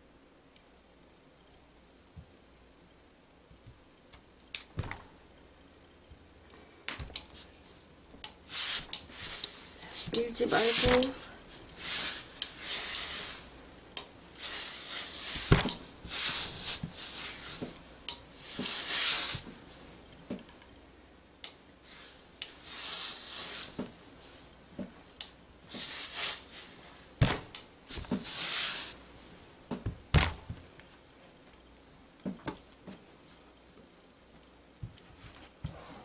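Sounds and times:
steam iron hissing: 0:08.5 - 0:13.6, 0:14.4 - 0:17.7, 0:18.4 - 0:19.5, 0:21.8 - 0:24.4, 0:25.7 - 0:27.0, 0:27.9 - 0:29.0
sharp knocks: 0:29.7 - 0:30.6.

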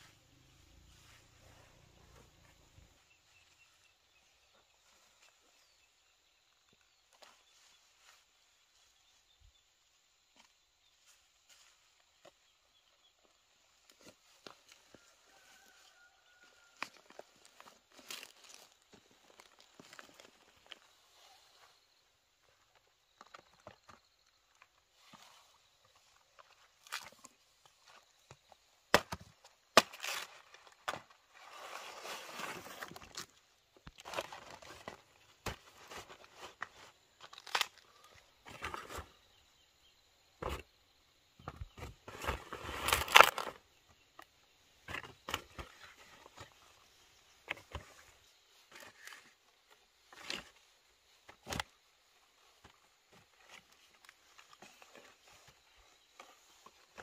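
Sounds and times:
leaves rustling and crackling: 0:13.8 - 0:21.7, 0:29.8 - 0:39.0, 0:42.1 - 0:43.6.

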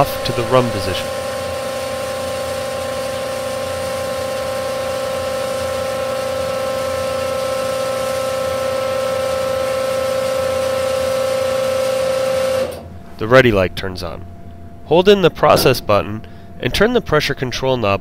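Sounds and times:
pump humming: 0:00.0 - 0:13.1.

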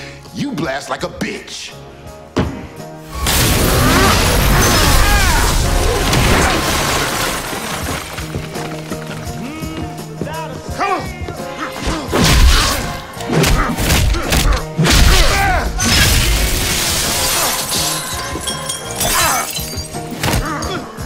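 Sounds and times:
dramatic music score: 0:00.0 - 0:21.0
glass shattering: 0:03.1 - 0:09.3, 0:15.0 - 0:20.5.

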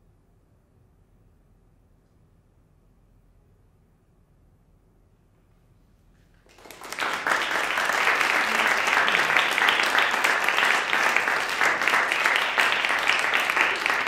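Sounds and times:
audience applause: 0:06.4 - 0:14.0.

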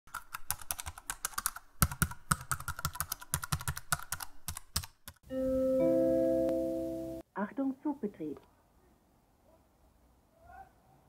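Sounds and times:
typewriter keys clacking: 0:00.1 - 0:05.2.

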